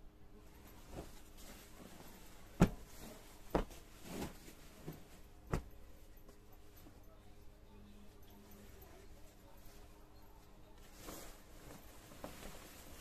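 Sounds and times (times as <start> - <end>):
soft swish of cloth: 0.4 - 7.0, 10.7 - 13.0
cloth flapping and thumping: 0.6 - 5.9, 11.0 - 13.0.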